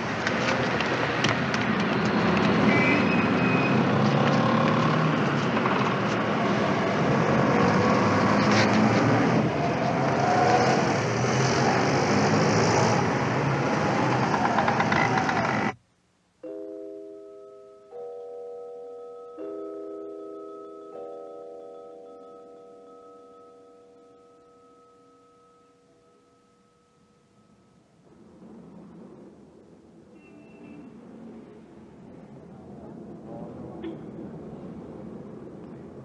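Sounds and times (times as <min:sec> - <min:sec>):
cars passing: 0:00.0 - 0:15.8, 0:30.9 - 0:36.0
ringing musical notes: 0:16.4 - 0:28.0.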